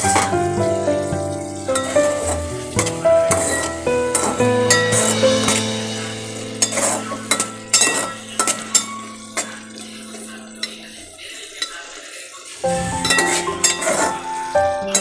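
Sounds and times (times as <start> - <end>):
food sizzling: 0.0 - 15.0
spoon clinking against pot: 6.6 - 10.8
metal spoon scraping a pot: 12.7 - 14.3.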